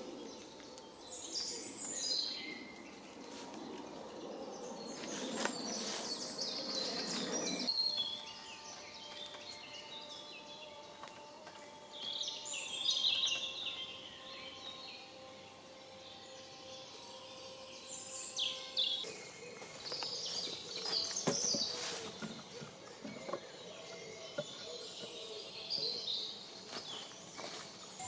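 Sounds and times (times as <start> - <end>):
birds singing: 0.0 - 28.0
rustling: 4.9 - 7.7, 19.9 - 23.3.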